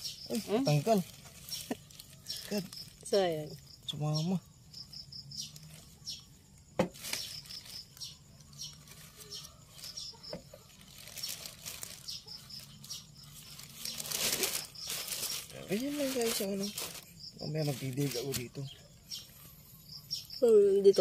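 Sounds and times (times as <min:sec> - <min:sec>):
insect chirping in quick pulses: 0:00.0 - 0:21.0
plastic sheeting crinkling: 0:00.3 - 0:03.2, 0:07.0 - 0:18.6.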